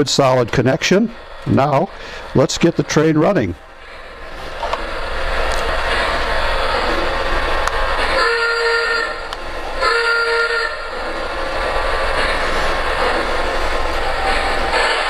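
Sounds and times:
model train running with low hum: 0:00.0 - 0:15.0
model train electronic horn: 0:08.0 - 0:11.0.

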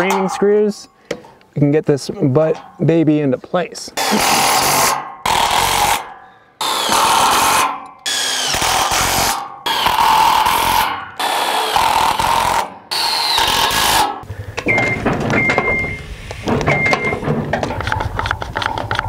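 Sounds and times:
power drill driving screws into steel: 0:04.0 - 0:14.2.

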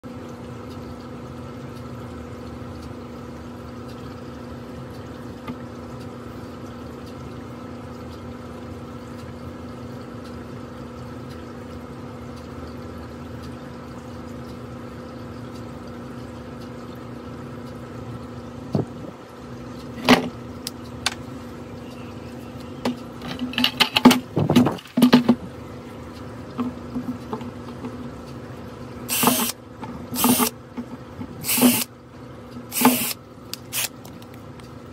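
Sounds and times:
steady hum: 0:00.0 - 0:34.9
plastic bucket knocks and clatter: 0:23.3 - 0:25.4
hand drill boring plastic: 0:29.1 - 0:29.6, 0:30.2 - 0:30.5, 0:31.4 - 0:31.9, 0:32.7 - 0:33.9.

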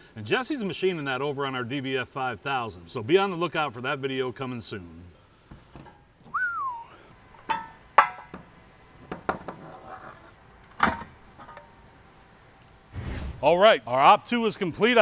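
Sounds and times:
whistled note rising and falling: 0:06.4 - 0:06.9.

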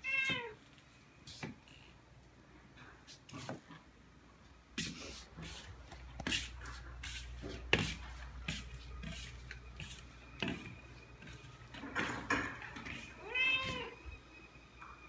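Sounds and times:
cat meowing: 0:00.0 - 0:00.6, 0:13.2 - 0:14.0.

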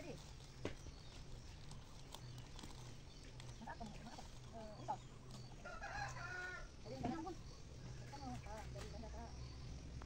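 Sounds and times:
rooster crowing: 0:05.6 - 0:06.8.

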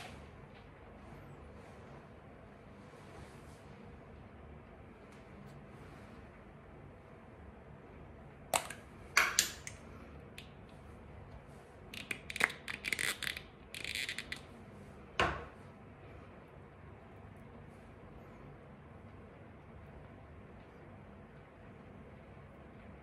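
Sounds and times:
pump bottle clicking: 0:08.6 - 0:09.8.

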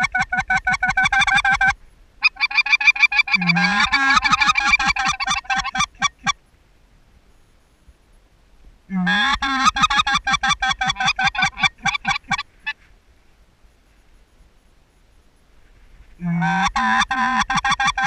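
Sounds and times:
goose call clucking notes: 0:00.0 - 0:06.4, 0:08.9 - 0:12.8, 0:16.2 - 0:18.0.

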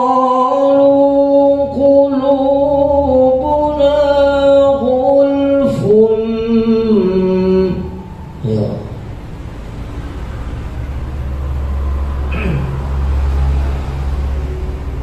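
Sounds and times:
man reciting melodically: 0:00.0 - 0:09.1.

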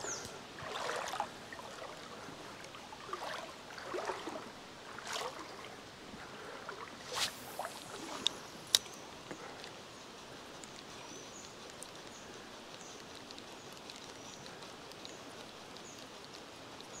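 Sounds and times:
shallow stream running: 0:00.0 - 0:17.0
soft swishes: 0:06.8 - 0:08.8.

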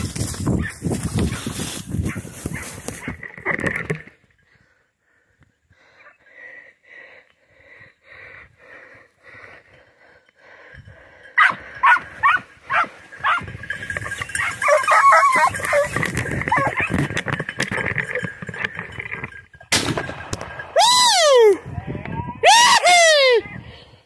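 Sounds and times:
dogs barking and yelping: 0:00.5 - 0:03.2, 0:11.4 - 0:17.2.

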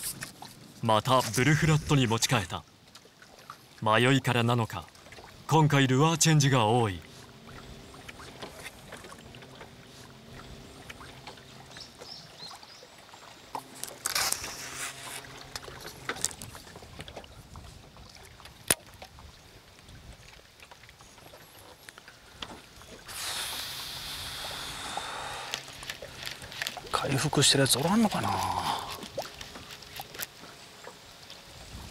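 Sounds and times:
water lapping and trickling: 0:00.0 - 0:31.9
water splash: 0:04.8 - 0:19.4, 0:22.6 - 0:31.9.

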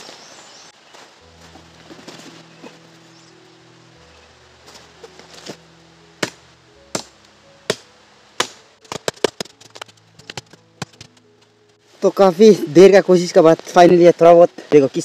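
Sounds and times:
machete chopping wood: 0:06.2 - 0:11.2.

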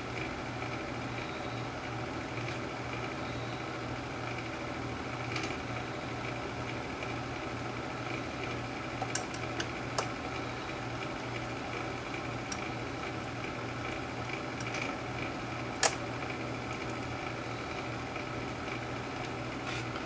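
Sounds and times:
steady low hum: 0:00.0 - 0:20.0
light clicks of small parts: 0:12.5 - 0:12.7.

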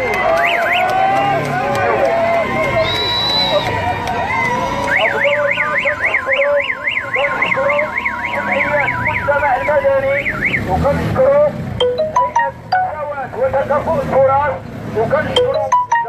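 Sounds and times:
crowd voices: 0:00.0 - 0:16.0
electronic siren warbling: 0:04.9 - 0:10.7.

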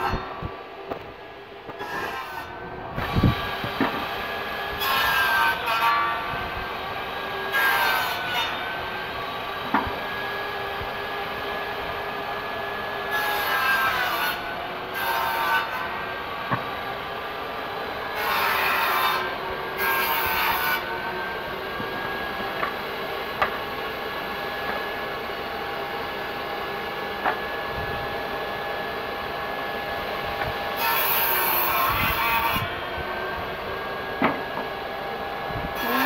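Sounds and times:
saw blade cutting wood: 0:00.0 - 0:10.5, 0:13.0 - 0:16.8, 0:18.0 - 0:23.7, 0:30.4 - 0:33.4, 0:35.8 - 0:36.0
table saw whining: 0:00.0 - 0:36.0
knocks of wood being handled: 0:27.2 - 0:27.4, 0:34.2 - 0:34.7.

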